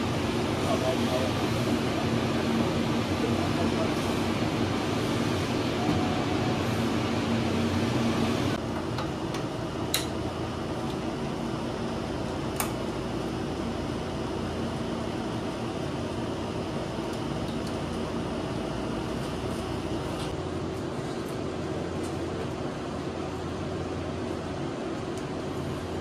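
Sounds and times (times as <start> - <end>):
cooling fans humming: 0.0 - 26.0.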